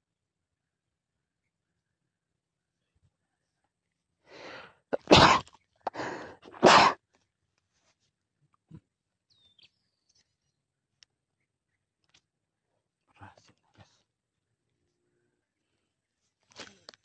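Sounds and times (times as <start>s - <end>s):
person sneezing: 5.0s - 7.0s.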